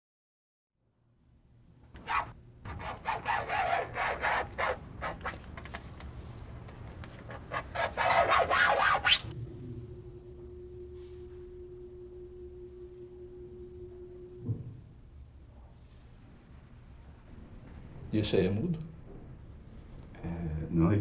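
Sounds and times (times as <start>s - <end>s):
key scraping car paint: 2.0s - 5.9s, 7.0s - 9.3s
steady low tone: 9.3s - 18.1s.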